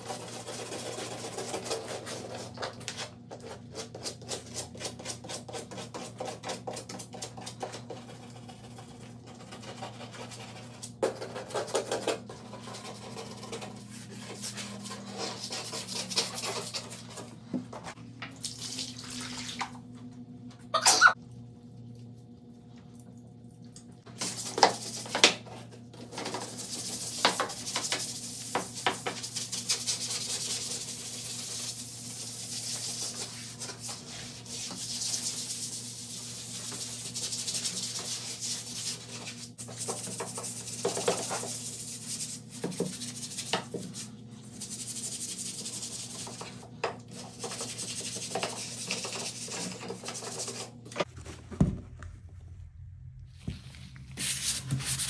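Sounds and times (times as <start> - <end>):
scrub brush rubbing on tile: 0.0 - 17.4, 26.1 - 50.8, 53.4 - 55.0.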